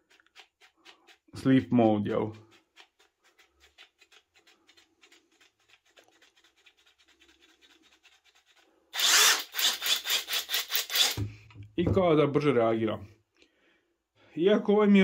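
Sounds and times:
impact driver pulsing: 9.0 - 11.3.

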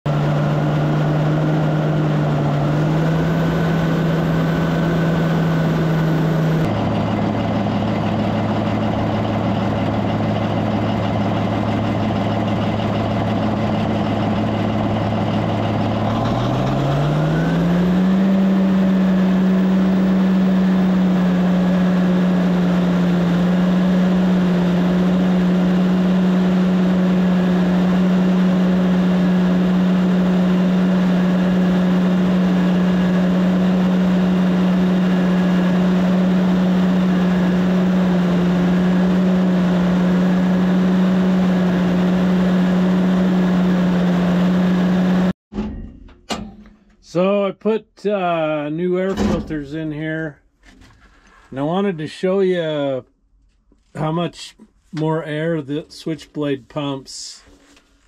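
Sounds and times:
thin turbo whine: 0.1 - 8.2
bulldozer diesel engine revving: 0.1 - 45.4.

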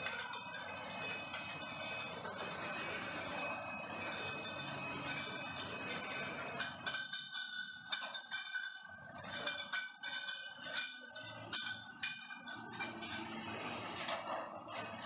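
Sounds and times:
glass bottles clinking: 3.3 - 14.4.

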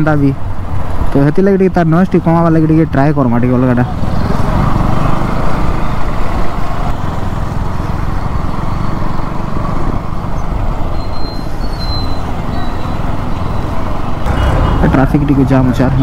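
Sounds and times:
motorcycle engine: 3.4 - 16.0.

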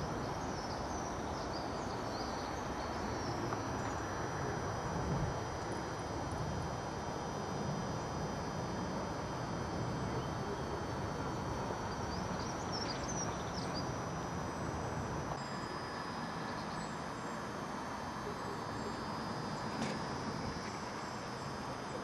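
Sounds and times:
distant diesel engines running: 9.8 - 22.0.

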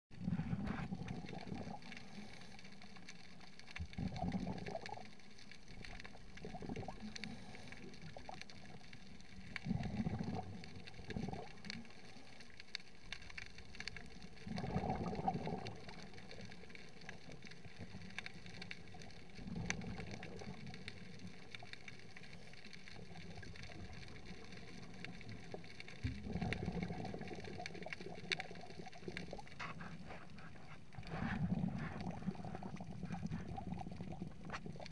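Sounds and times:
underwater hiss: 0.2 - 3.4, 6.5 - 8.6.

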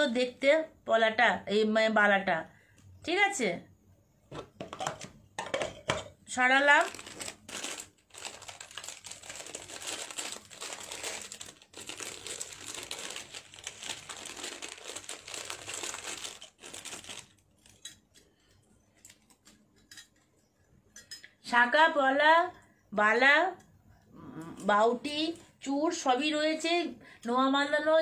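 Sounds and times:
packaging crinkling: 6.6 - 19.6.

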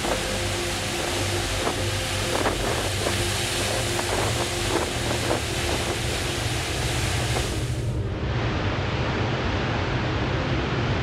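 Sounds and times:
waves breaking over rocks: 0.0 - 7.9
wind on microphone: 0.0 - 7.9.

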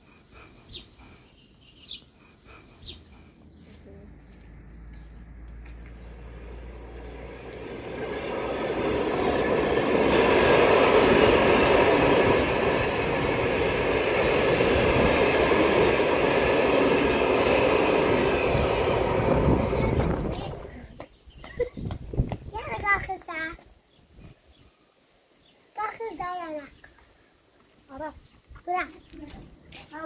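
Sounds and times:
train carriages rolling on rails: 4.3 - 20.7.

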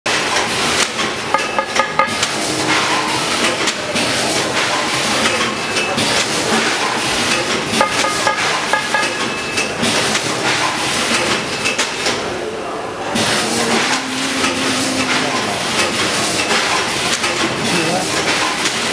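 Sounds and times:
packaging machine clatter and hiss: 13.2 - 18.9.

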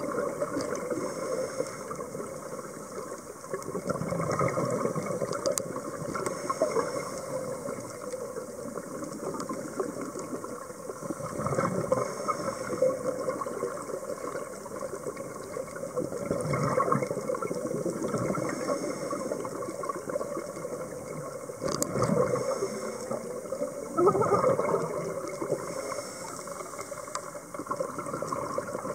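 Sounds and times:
exhaled bubbles gurgling: 0.0 - 28.9
regulator inhalation hiss: 0.9 - 2.2, 11.9 - 13.1, 18.4 - 19.6, 22.3 - 23.4, 25.5 - 27.0.

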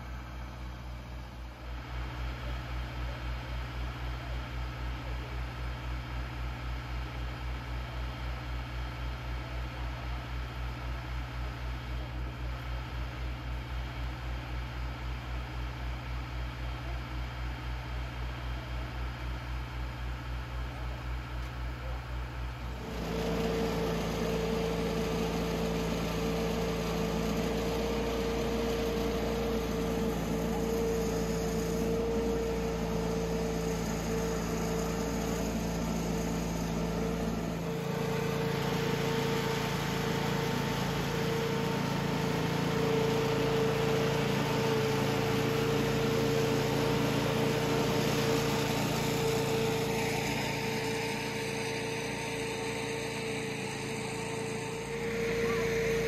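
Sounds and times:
machinery drone with high tone: 49.8 - 56.0.

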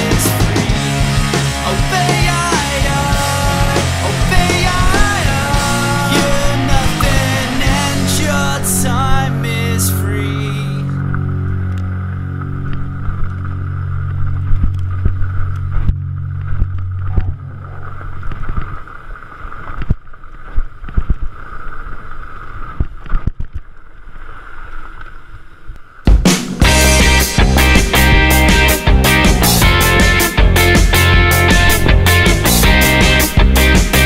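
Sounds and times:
low steady drone: 0.0 - 19.8, 26.6 - 34.0.

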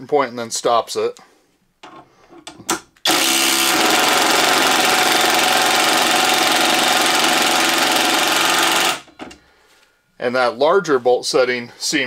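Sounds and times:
impact driver hammering: 2.6 - 9.4.

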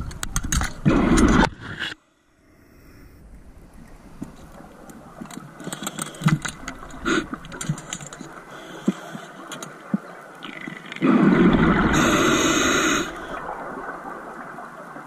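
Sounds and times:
underwater sharp clicks: 3.8 - 13.5.

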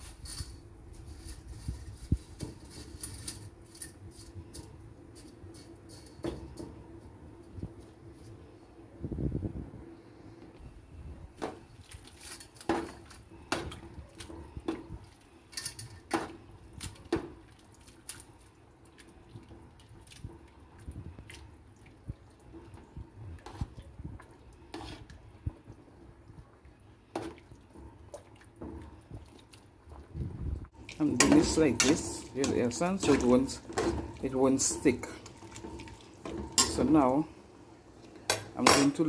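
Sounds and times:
water sloshing: 26.9 - 37.2
metal tongs clinking on pot: 30.9 - 35.2, 36.2 - 37.1, 38.3 - 39.0.

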